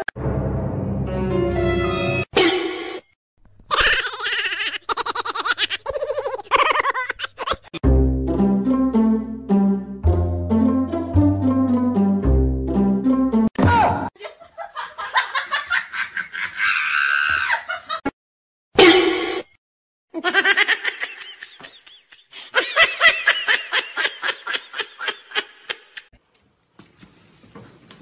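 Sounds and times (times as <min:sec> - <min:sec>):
people laughing: 0:14.2 - 0:18.0.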